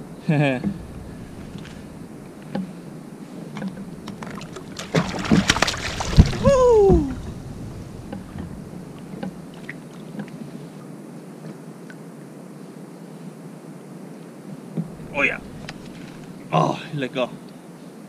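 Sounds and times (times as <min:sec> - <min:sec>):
clatter on plastic kayak: 0:03.5 - 0:06.4
fish splashing into water: 0:03.5 - 0:10.2
heavy thump: 0:14.8 - 0:16.5.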